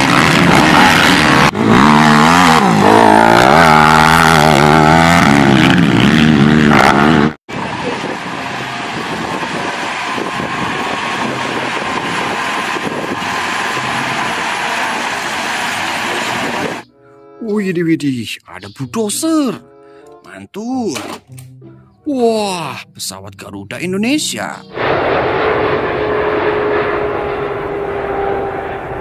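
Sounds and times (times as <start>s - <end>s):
quad engine revving hard: 0.0s - 16.8s, 24.7s - 29.0s
bulldozer diesel engine running: 7.5s - 16.9s.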